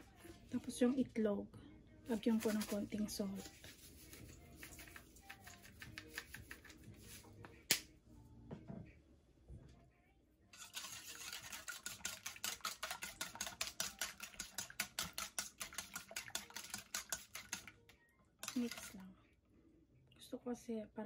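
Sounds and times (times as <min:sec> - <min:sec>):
whisk beating eggs in metal bowl: 0:02.1 - 0:06.8, 0:10.6 - 0:17.8, 0:18.4 - 0:19.1
salt shaker shaking: 0:02.1 - 0:07.3, 0:10.6 - 0:17.7, 0:18.4 - 0:19.0.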